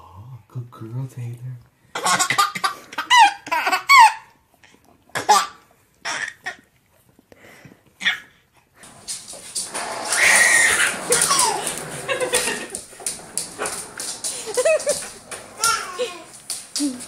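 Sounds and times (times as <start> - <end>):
wheels rolling on wooden floor: 8.8 - 17.0.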